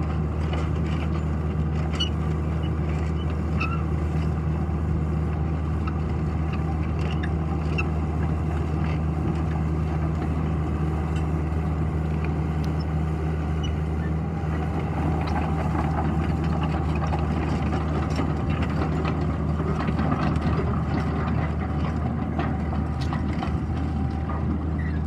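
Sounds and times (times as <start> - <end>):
tracks clanking and crunching on gravel: 0.0 - 4.4, 14.5 - 25.0
excavator diesel engine running: 0.0 - 25.0.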